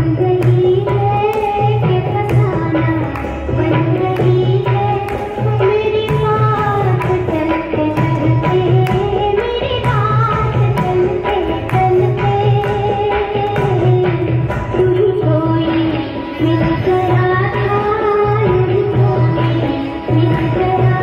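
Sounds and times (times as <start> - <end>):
hand drums driving beat: 0.2 - 15.8.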